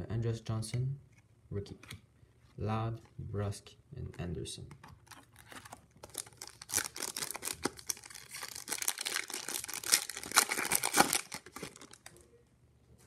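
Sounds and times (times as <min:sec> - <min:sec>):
wrapper tearing and crinkling: 0:05.0 - 0:12.2.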